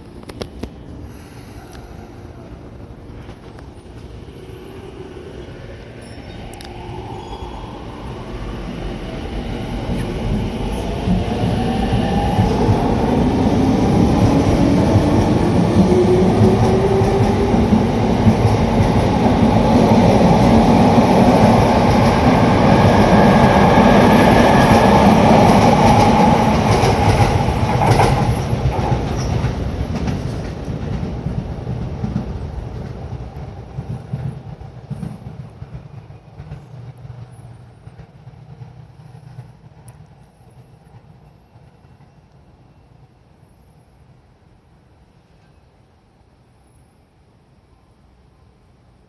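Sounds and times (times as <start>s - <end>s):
train wheels clattering on rails: 9.8s - 42.4s.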